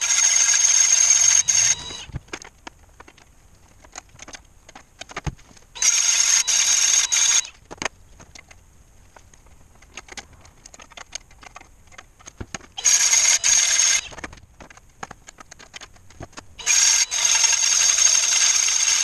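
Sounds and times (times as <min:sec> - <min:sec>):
cordless drill whine: 0:00.0 - 0:02.1, 0:05.8 - 0:07.6, 0:12.8 - 0:14.1, 0:16.6 - 0:19.0
handling clicks and taps: 0:09.2 - 0:12.8, 0:14.1 - 0:16.5.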